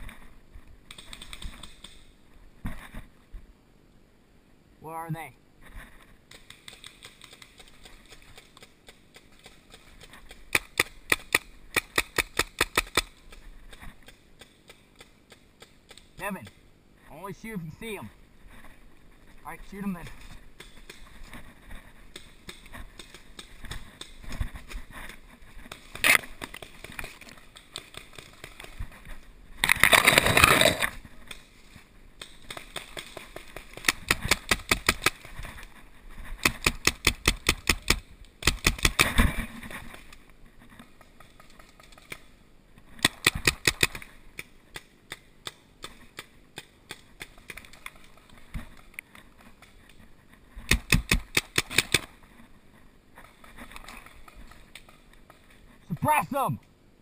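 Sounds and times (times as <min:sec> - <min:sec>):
paintball markers firing: 0:06.3 - 0:16.6, 0:36.4 - 0:39.2, 0:43.0 - 0:48.1, 0:50.7 - 0:52.1.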